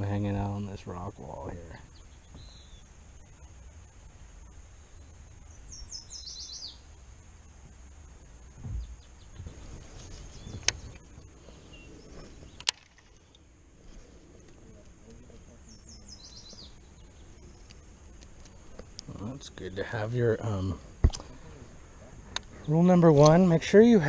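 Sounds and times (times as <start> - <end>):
bird chirping: 0.0 - 3.6, 4.4 - 7.0, 8.6 - 13.5, 14.6 - 17.9
dull bump: 8.6 - 9.7.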